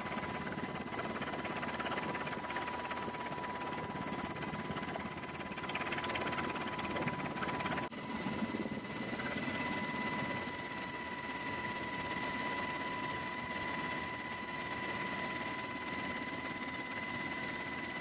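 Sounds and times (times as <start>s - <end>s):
helicopter engine and rotor rumble: 0.0s - 18.0s.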